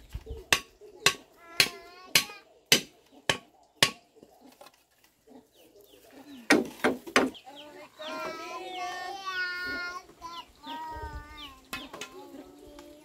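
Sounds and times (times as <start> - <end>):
machete chopping wood: 0.5 - 4.1, 6.5 - 7.4.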